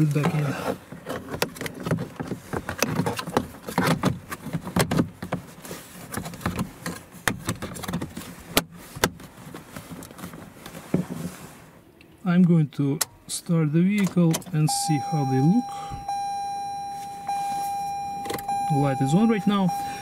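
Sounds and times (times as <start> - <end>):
plastic panel rattling and scraping: 0.0 - 11.3.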